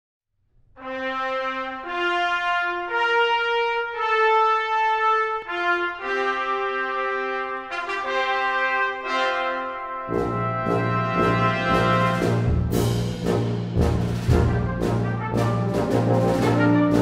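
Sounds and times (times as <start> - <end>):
brass fanfare chords: 0.8 - 17.0.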